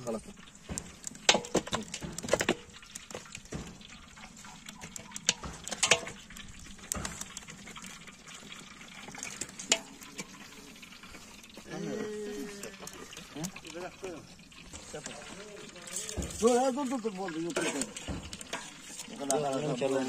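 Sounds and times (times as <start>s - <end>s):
wet meat slapping on metal: 0.3s - 8.6s, 9.2s - 10.1s, 14.7s - 19.9s.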